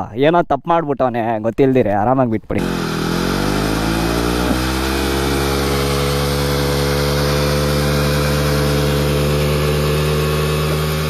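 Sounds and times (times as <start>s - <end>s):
motorcycle engine idling: 2.6s - 11.0s.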